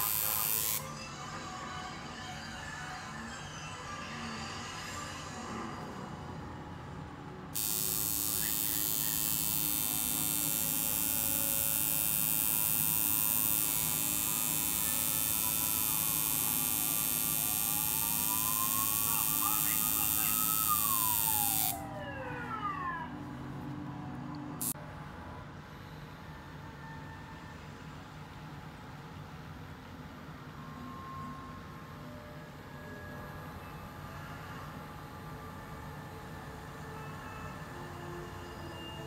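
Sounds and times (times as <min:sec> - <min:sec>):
tattoo machine buzzing: 0:00.0 - 0:00.9, 0:07.6 - 0:21.8.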